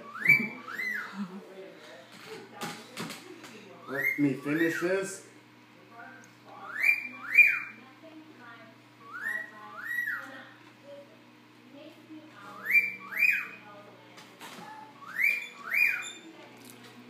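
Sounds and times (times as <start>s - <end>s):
wolf whistle: 15.0s - 16.1s.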